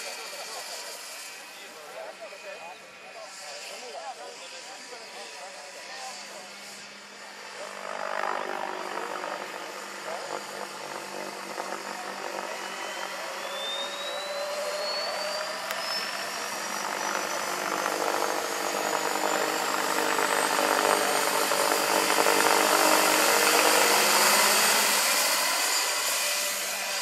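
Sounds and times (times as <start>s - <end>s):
model helicopter rotor noise: 0.0s - 27.0s
thin high whine: 8.5s - 27.0s.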